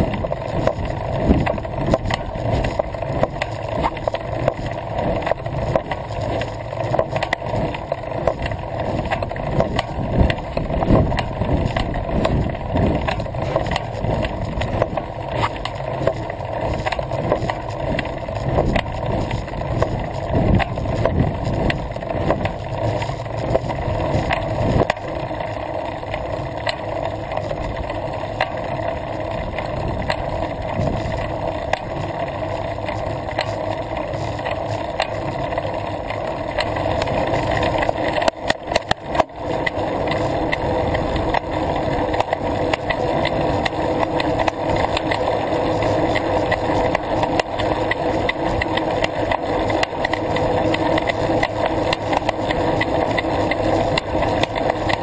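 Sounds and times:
bicycle rolling on tarmac: 0.0 - 55.0
bike rattles and clicks: 0.0 - 55.0.

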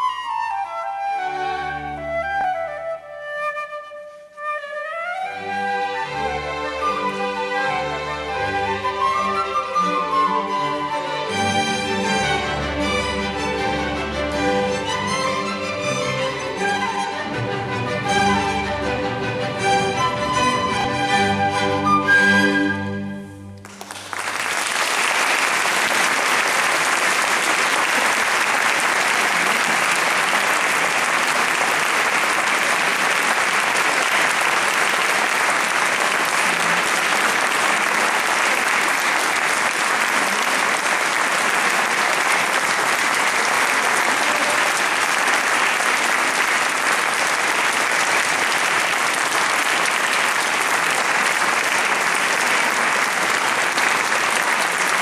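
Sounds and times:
audience applauding: 23.6 - 55.0.

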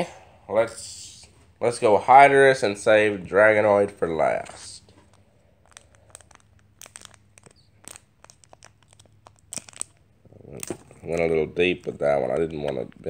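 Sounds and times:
foil wrapper crinkling: 4.3 - 13.0.

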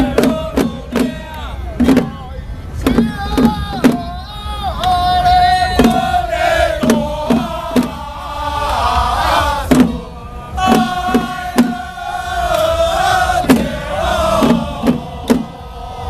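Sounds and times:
group chanting in unison: 0.0 - 2.2, 2.9 - 16.0
small hand drum strikes: 0.0 - 2.2, 5.8 - 6.1, 6.8 - 8.0, 9.7 - 10.0, 10.6 - 12.6, 13.4 - 13.8, 14.4 - 15.6.

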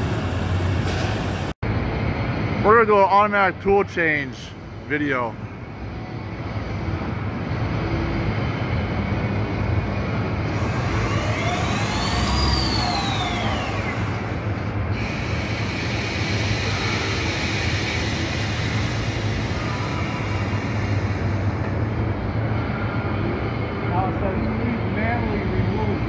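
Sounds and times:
machine noise with low hum: 0.0 - 26.0
rising and falling whine: 6.2 - 24.1.

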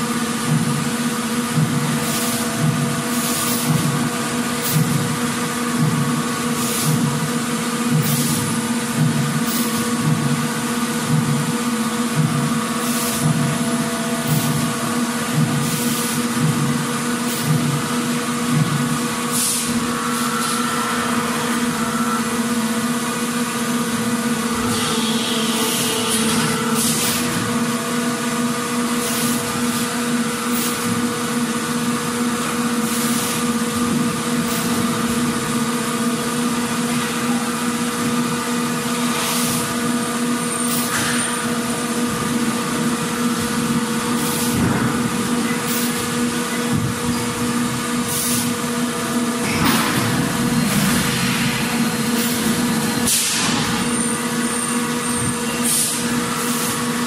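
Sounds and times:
machinery hum: 0.0 - 57.0
pneumatic tool air hisses: 2.0 - 2.5, 3.1 - 4.0, 6.5 - 7.1, 8.0 - 8.6, 9.4 - 10.1, 12.8 - 13.4, 14.2 - 14.8, 15.5 - 16.4, 17.2 - 17.8, 19.3 - 20.6, 24.6 - 27.5, 28.9 - 31.1, 32.8 - 33.6, 39.0 - 39.8, 40.4 - 41.5, 44.1 - 44.7, 45.6 - 46.2, 48.0 - 48.7, 49.4 - 57.0.

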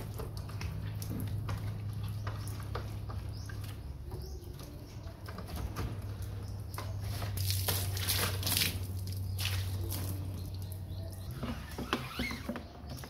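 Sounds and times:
water splashing: 6.7 - 11.3.

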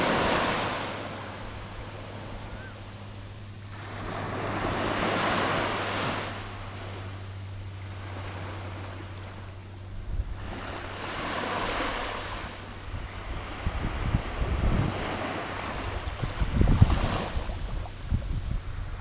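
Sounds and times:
small waves breaking on beach: 0.0 - 19.0
wind buffeting microphone: 12.7 - 19.0.

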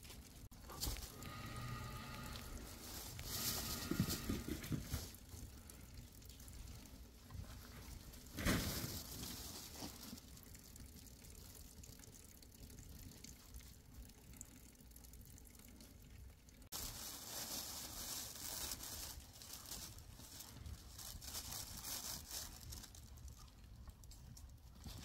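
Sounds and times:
wood fire crackling and hissing: 0.0 - 14.2.

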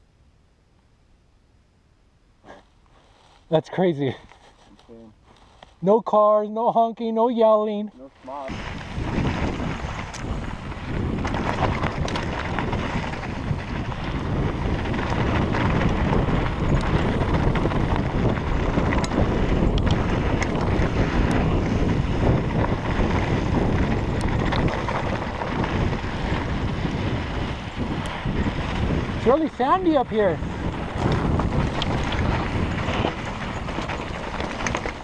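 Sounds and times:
wind buffeting microphone: 8.1 - 35.0
tyre noise on dirt: 8.2 - 35.0.

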